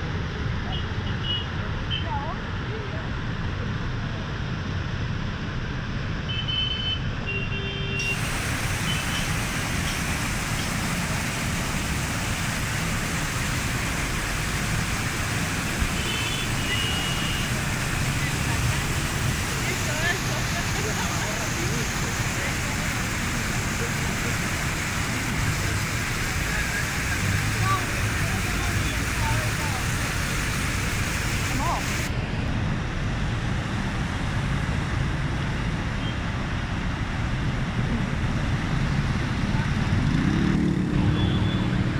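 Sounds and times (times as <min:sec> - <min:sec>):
traffic driving through water: 0:00.0 - 0:41.9
floodwater rushing: 0:08.0 - 0:32.2
rain falling: 0:08.1 - 0:32.1.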